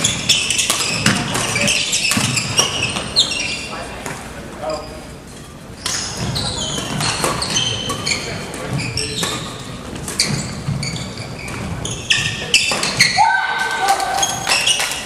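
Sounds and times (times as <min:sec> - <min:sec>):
racket hitting shuttlecock: 0:00.0 - 0:03.1
shoes squeaking on gym floor: 0:00.0 - 0:13.3, 0:14.0 - 0:15.0.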